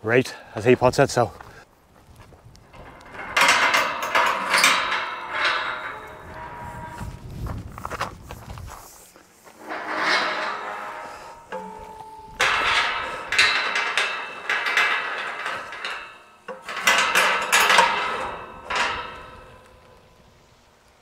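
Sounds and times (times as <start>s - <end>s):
metal gate clanking and ringing: 2.7s - 7.3s, 9.6s - 20.3s.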